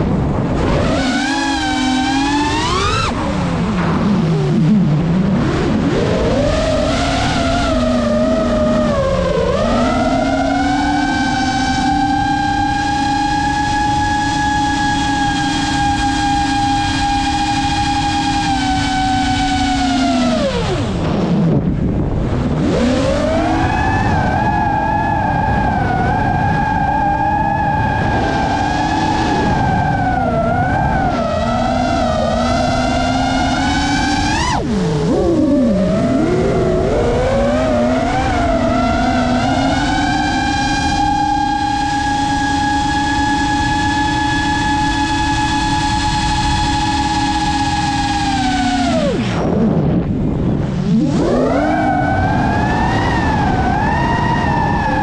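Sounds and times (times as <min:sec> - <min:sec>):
drone motors whining: 0:00.0 - 0:55.0
wind rushing: 0:20.2 - 0:43.8, 0:45.7 - 0:55.0.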